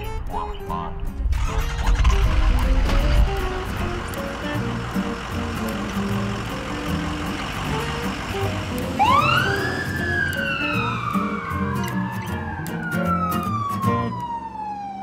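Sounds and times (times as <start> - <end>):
background music: 0.0 - 14.7
ambulance siren wailing: 3.8 - 15.0.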